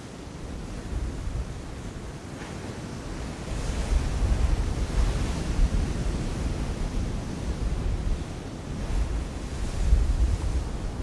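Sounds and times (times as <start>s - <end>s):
sea surf against rocks: 0.0s - 11.0s
wind buffeting microphone: 3.2s - 11.0s.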